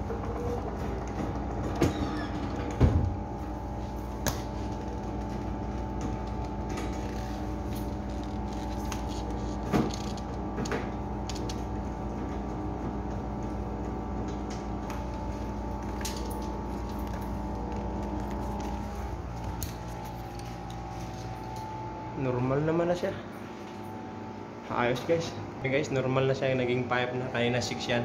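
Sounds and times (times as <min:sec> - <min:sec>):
refrigerator machinery humming: 0:00.0 - 0:28.0.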